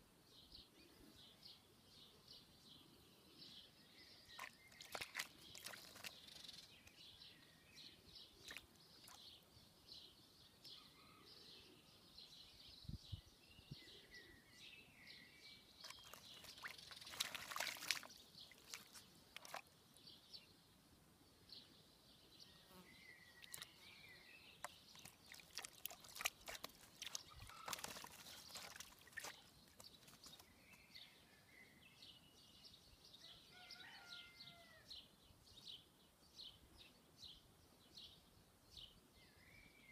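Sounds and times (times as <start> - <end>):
small birds chirping: 0.3 - 20.7, 21.3 - 39.9
bird splashing in water: 4.3 - 6.9, 8.4 - 9.4, 15.8 - 19.8, 23.4 - 23.7, 24.6 - 30.4.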